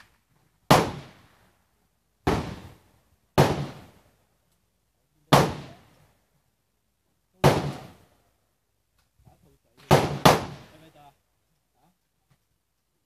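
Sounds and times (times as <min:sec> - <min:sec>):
gunshots: 0:00.7 - 0:01.3, 0:02.2 - 0:02.8, 0:03.4 - 0:03.9, 0:05.3 - 0:05.8, 0:07.4 - 0:08.0, 0:09.8 - 0:10.8.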